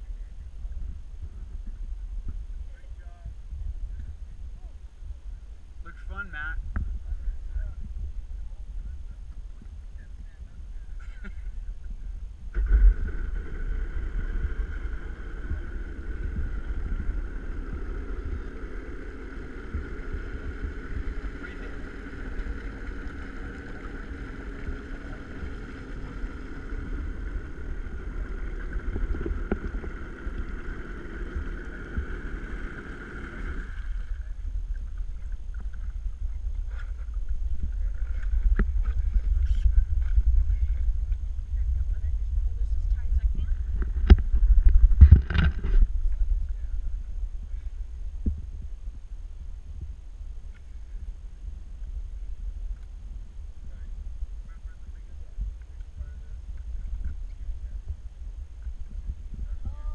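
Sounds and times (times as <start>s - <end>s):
wind and water rumble: 0.0s - 59.9s
watercraft engine whining: 11.0s - 48.0s.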